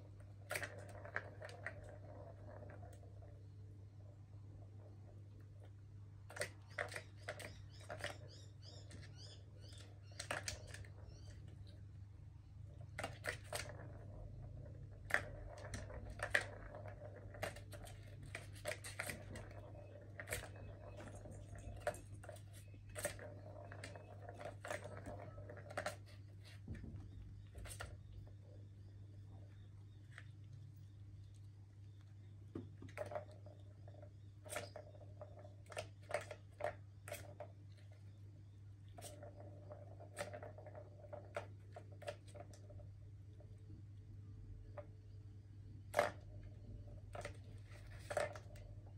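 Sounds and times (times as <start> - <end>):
plastic balls clicking: 0.0 - 3.4, 5.4 - 11.8, 12.7 - 28.6
ball rolling round track: 0.0 - 48.9.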